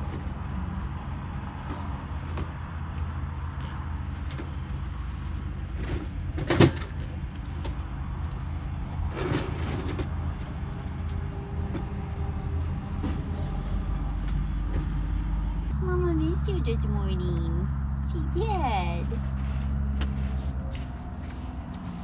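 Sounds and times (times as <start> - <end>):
steady low rumble: 7.2 - 21.7.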